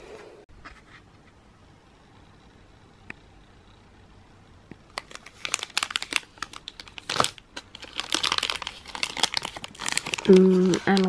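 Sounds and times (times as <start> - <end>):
foil wrapper crinkling: 4.9 - 11.0.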